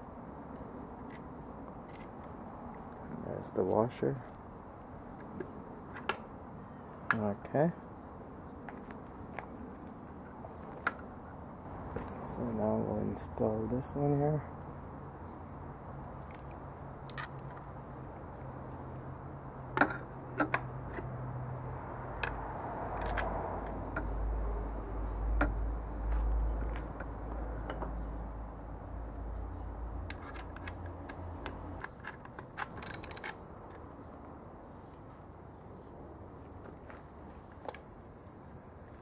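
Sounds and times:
light metal clicks and knocks: 30.0s - 33.8s.

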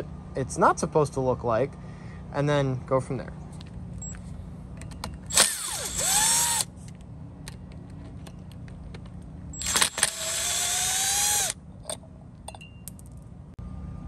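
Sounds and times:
power driver motor whine: 5.3s - 6.7s, 9.6s - 11.6s.

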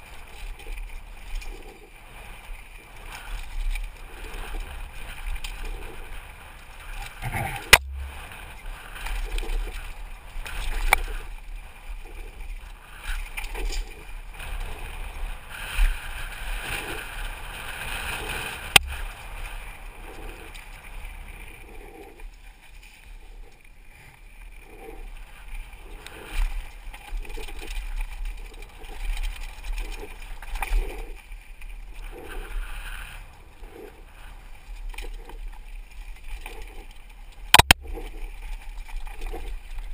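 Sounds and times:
bike rattling: 0.0s - 39.9s
bike tyres crunching over stones: 0.0s - 39.9s
wind rumbling on microphone: 0.0s - 39.9s
sharp knocks: 7.4s - 8.2s.

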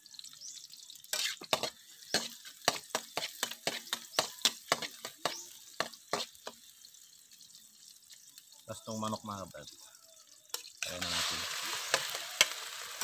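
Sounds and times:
light sizzle: 0.0s - 13.0s
metal spatula scraping a wok: 1.0s - 6.5s, 10.5s - 13.0s.

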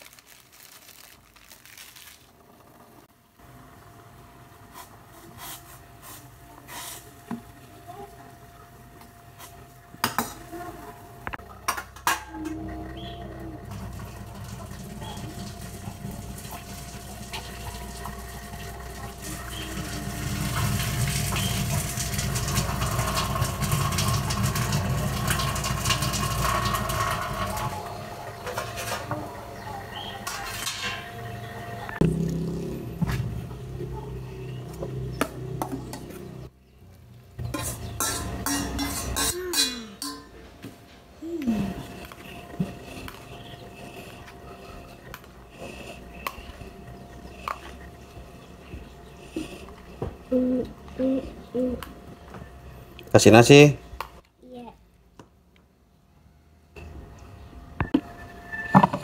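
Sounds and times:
water splashing into metal sink: 13.9s - 27.7s
metal spoon clinking pot: 37.6s - 40.4s.

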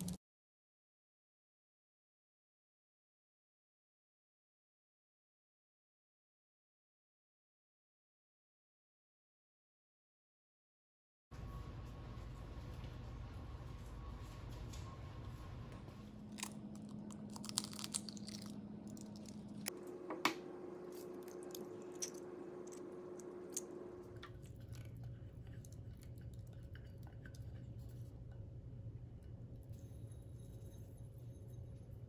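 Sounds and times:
eggs cracking on glass bowl: 16.2s - 19.7s, 20.3s - 27.7s
shells pulled apart: 16.3s - 19.7s.

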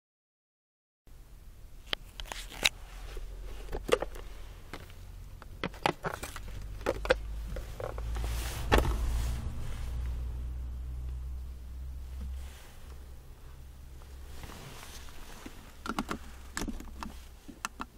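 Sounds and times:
low steady hum: 1.1s - 17.9s
box handling clicks and rustles: 1.9s - 9.0s, 14.8s - 17.9s.

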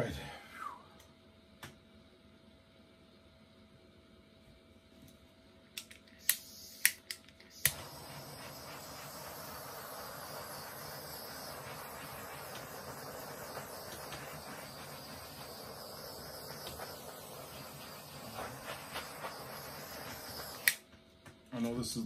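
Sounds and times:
torch igniter clicking: 5.8s - 20.9s
torch flame hissing: 6.2s - 20.9s.

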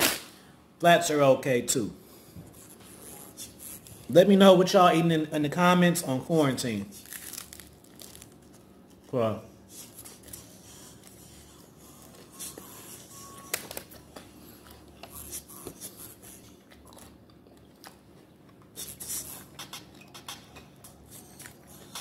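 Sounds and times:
person chewing and crunching: 7.0s - 9.1s, 13.8s - 20.0s, 20.6s - 22.0s.

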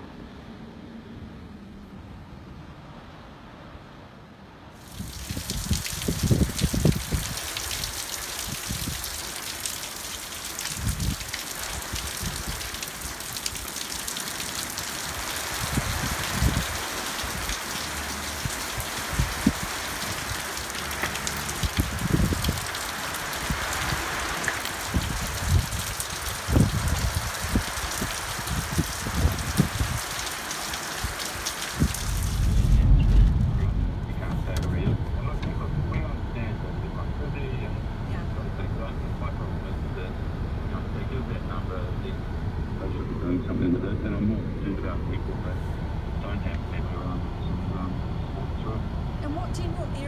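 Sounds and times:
heavy rain on paving: 4.7s - 36.4s
wind buffeting microphone: 4.9s - 9.2s, 10.6s - 12.8s, 15.2s - 17.6s, 18.4s - 20.6s, 21.2s - 30.3s, 31.0s - 37.1s
muffled low rumble: 31.8s - 50.0s.

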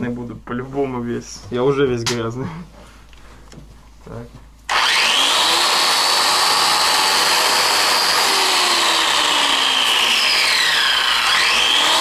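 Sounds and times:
angle grinder stripping wood: 4.7s - 12.0s.

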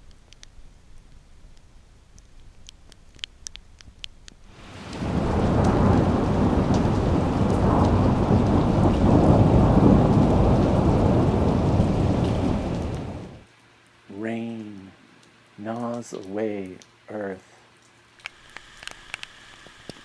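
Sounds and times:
sharp ticks: 2.1s - 4.4s
heavy rain: 4.5s - 17.4s
deep rumble of thunder: 4.6s - 13.4s.

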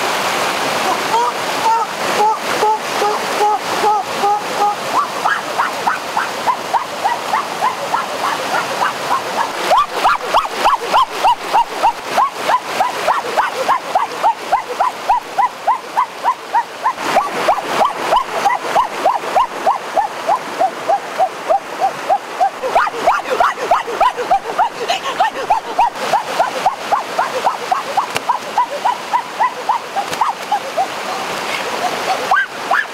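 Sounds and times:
stream rapids rushing: 0.0s - 32.9s.

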